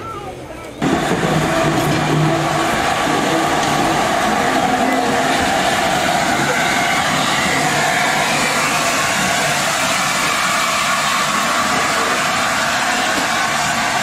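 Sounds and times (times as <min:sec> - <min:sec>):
steam locomotive hissing: 0:00.8 - 0:14.0.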